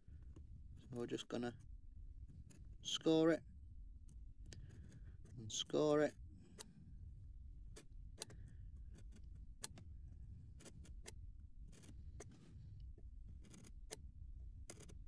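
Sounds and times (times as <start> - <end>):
knife scoring card: 13.4 - 14.0, 14.7 - 15.0.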